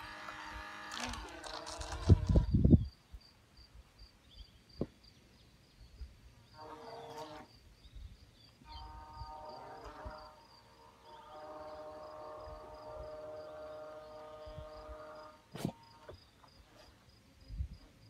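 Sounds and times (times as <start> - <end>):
electric boat motor whine: 0.0 - 2.5
cricket chirping: 1.5 - 18.0.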